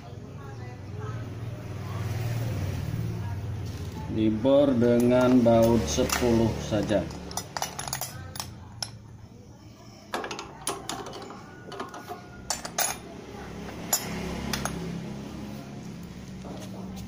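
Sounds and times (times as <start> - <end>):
metallic clinks and knocks: 5.0 - 9.1, 10.1 - 13.1.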